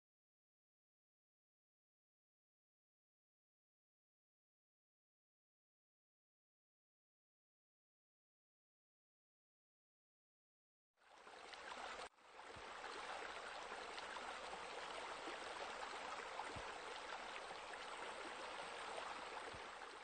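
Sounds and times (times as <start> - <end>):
water pouring and splashing: 11.0 - 20.0.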